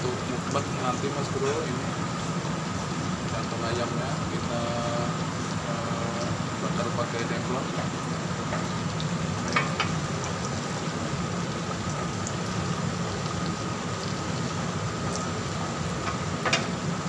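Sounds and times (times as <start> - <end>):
skewers sizzling on grill pan: 0.0 - 17.0
skewers clicking on pan: 9.5 - 10.0.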